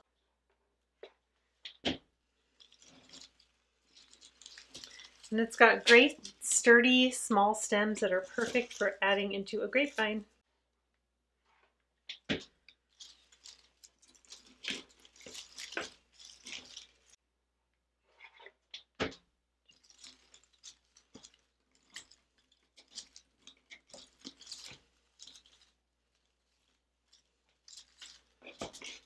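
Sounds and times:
plastic leaves rustling: 2.3s - 10.3s, 12.9s - 17.2s, 19.7s - 29.0s.

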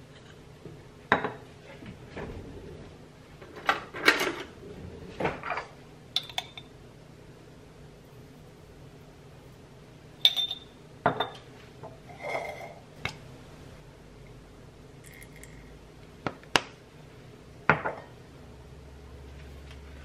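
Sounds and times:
kitchenware clinking and knocking: 1.1s - 1.4s, 10.2s - 11.4s.

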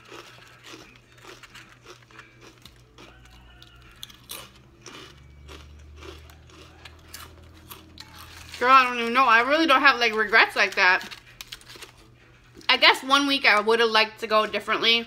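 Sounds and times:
person chewing food: 0.0s - 8.6s.

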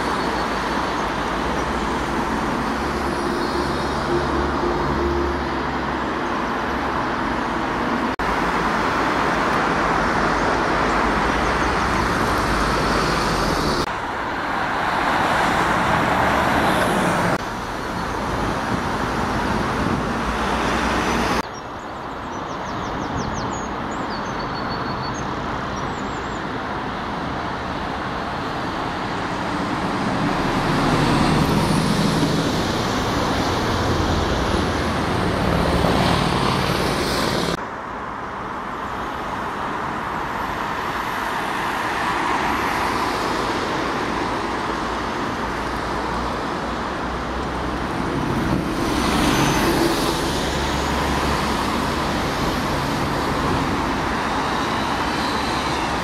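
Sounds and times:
bus diesel engine approaching: 0.0s - 22.3s, 23.1s - 56.0s
road traffic noise: 0.0s - 56.0s.

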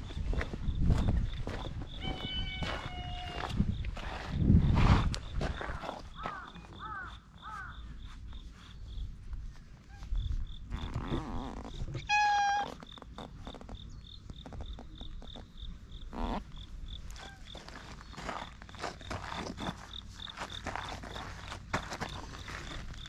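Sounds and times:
cat meowing: 2.0s - 3.4s, 12.0s - 12.8s.

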